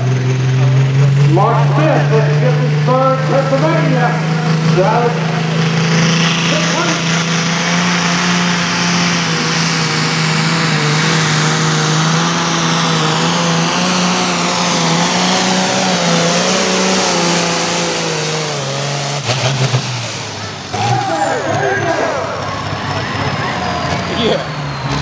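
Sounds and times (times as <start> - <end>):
diesel engine at full throttle: 0.0 - 25.0.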